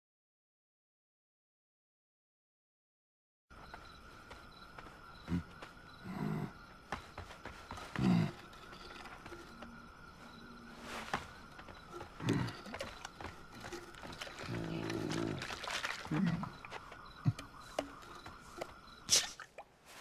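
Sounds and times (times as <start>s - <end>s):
big cat growling and snarling: 12.0s - 16.6s.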